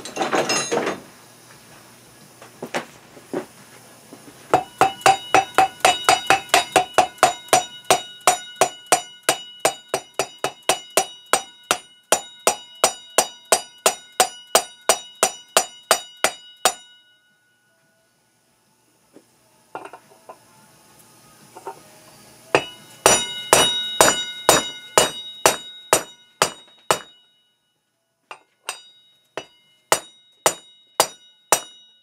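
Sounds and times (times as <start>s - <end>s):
hammer striking metal: 4.5s - 17.1s, 22.5s - 27.4s, 28.3s - 32.0s.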